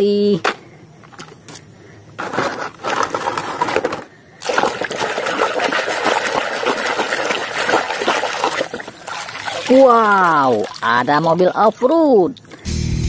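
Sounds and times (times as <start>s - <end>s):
water splashing and sloshing: 2.2s - 12.7s.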